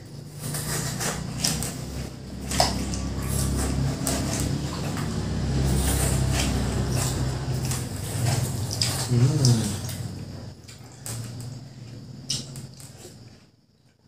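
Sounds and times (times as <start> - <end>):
spoons scraping watermelon flesh: 0.0 - 10.1
steady low hum: 0.0 - 14.0.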